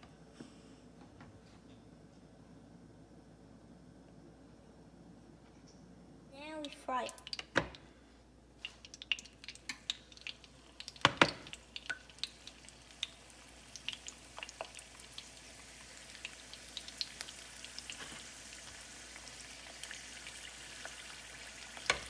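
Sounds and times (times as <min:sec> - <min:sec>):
oil crackling and popping: 0:07.0 - 0:07.9, 0:08.6 - 0:22.0
food frying in hot oil: 0:08.6 - 0:22.0.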